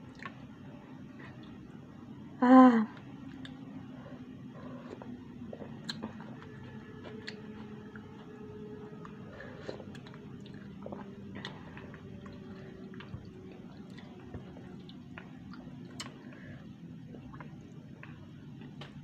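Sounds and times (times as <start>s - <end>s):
steady low hum: 0.0s - 19.0s
chewing and slurping noodles: 3.4s - 18.3s.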